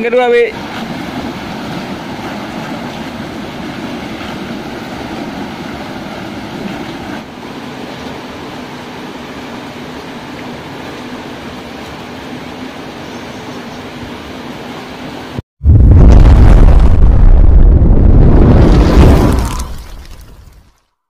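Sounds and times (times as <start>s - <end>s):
water rushing through sluice gate: 0.0s - 12.9s.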